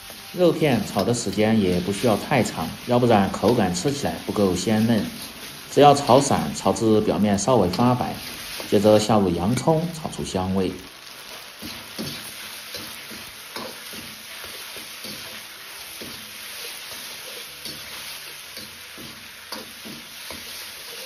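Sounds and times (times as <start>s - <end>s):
meat and onion sizzling in a wok: 0.0s - 21.0s
metal spatula scraping a wok: 11.3s - 21.0s.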